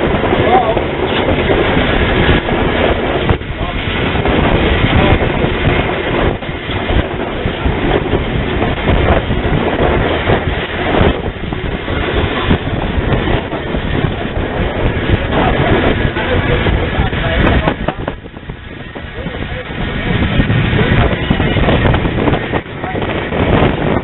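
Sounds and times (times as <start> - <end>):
steam locomotive running: 0.0 - 24.0
wind on microphone: 0.0 - 24.0.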